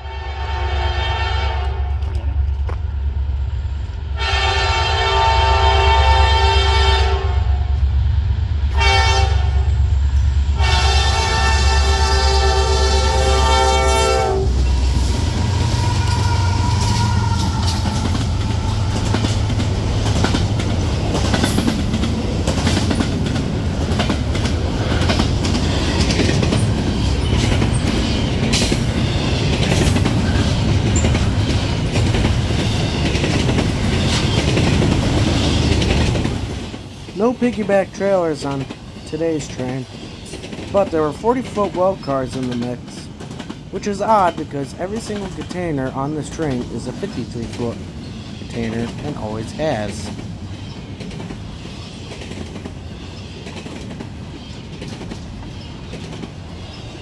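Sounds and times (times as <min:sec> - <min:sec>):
locomotive horn blasts: 0:00.0 - 0:02.0, 0:04.2 - 0:07.6, 0:08.7 - 0:09.7, 0:10.6 - 0:17.8
locomotive engine rumble: 0:07.4 - 0:51.6
train wheels clattering on rails: 0:14.5 - 0:57.0.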